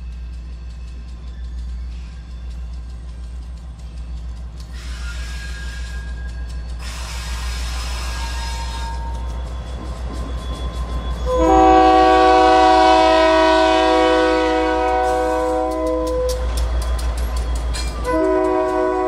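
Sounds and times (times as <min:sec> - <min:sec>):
diesel locomotive rumbling: 0:00.0 - 0:19.0
multi-note air horn: 0:11.3 - 0:16.3, 0:18.1 - 0:19.0.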